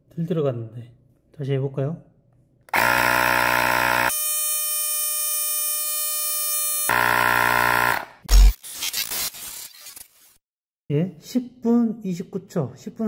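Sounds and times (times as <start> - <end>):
tyre inflator compressor humming: 2.7 - 4.4, 6.9 - 8.2.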